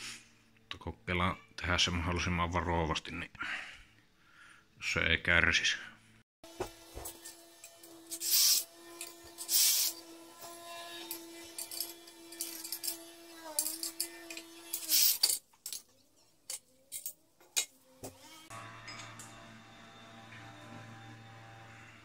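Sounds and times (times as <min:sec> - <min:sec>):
cordless drill motor whine: 0:18.3 - 0:22.0.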